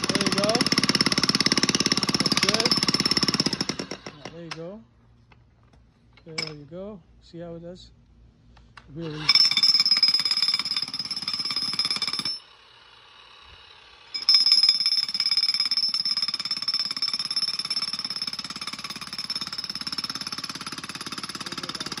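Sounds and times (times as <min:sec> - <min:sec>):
jackhammer hammering into dirt: 0:00.0 - 0:04.6, 0:09.1 - 0:22.0.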